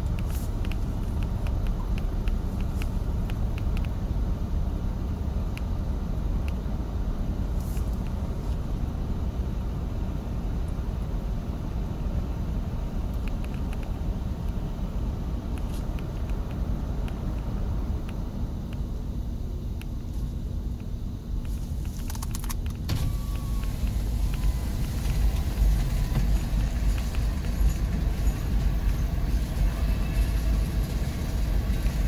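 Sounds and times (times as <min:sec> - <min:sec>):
clicks and squeaks from running gear: 0:21.5 - 0:24.9
freight train wheels rumbling on rail: 0:22.7 - 0:32.0.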